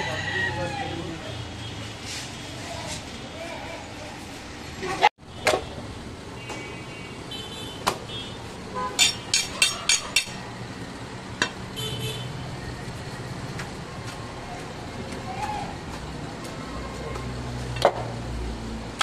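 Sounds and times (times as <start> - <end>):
traffic noise: 0.0 - 19.0
car horn toots: 11.8 - 12.4.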